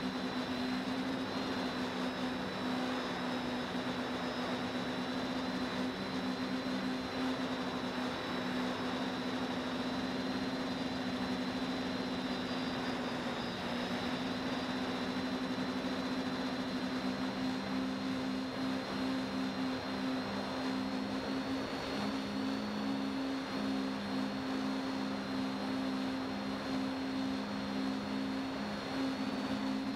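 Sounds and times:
drone motors humming: 0.0 - 29.9.

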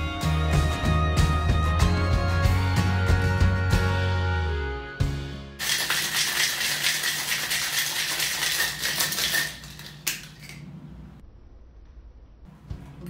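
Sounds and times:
ice rattling in a cocktail shaker: 5.6 - 10.6.

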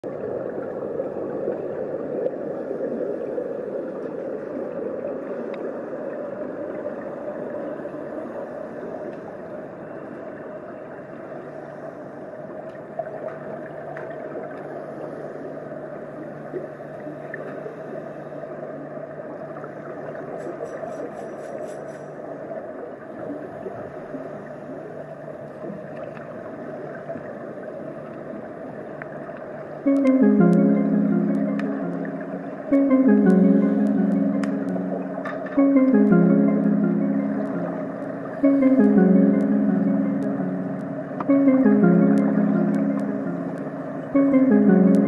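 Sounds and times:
underwater rumble and hiss: 0.0 - 29.9
low steady hum: 22.0 - 45.0.

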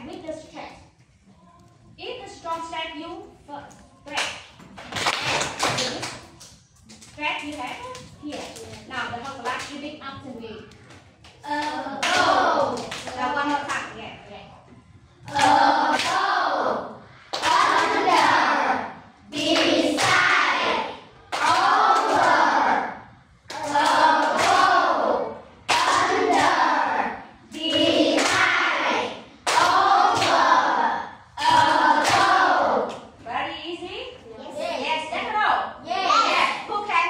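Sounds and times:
children clapping: 4.1 - 6.6, 11.2 - 13.3, 15.3 - 16.3, 17.3 - 18.4, 19.4 - 20.4, 21.3 - 22.4, 23.5 - 24.8, 25.7 - 26.6, 27.6 - 28.8, 29.4 - 30.6
children chanting in unison: 11.5 - 12.8, 15.3 - 33.0.

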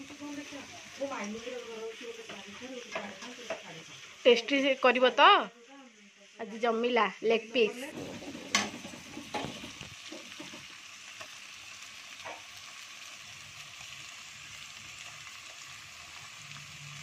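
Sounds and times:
spatula stirring and scraping pan: 0.0 - 5.4, 7.6 - 11.4
onions sizzling in hot oil: 0.0 - 17.0.

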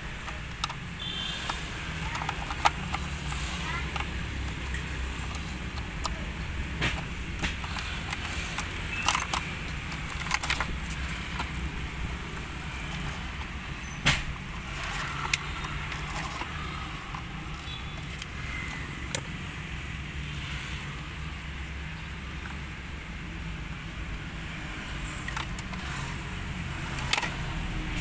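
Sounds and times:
plastic trim clicks and rattles: 0.1 - 19.3, 25.2 - 27.8.

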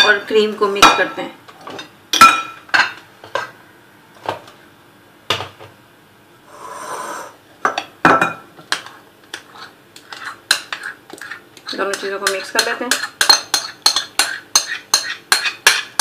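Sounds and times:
metal spoon clinking on glass bowl: 11.9 - 15.9.

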